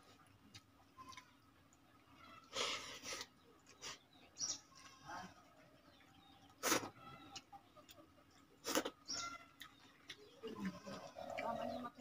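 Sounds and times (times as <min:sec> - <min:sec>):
chewing and smacking: 0:00.0 - 0:02.0, 0:05.9 - 0:12.0.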